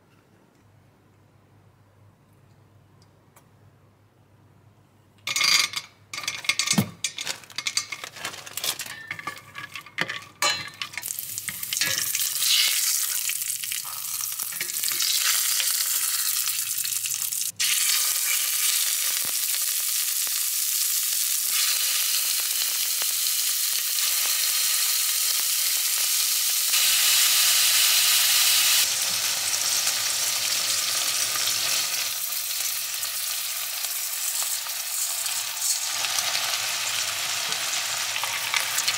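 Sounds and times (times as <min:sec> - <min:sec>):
food sizzling in oil: 0:10.4 - 0:38.9.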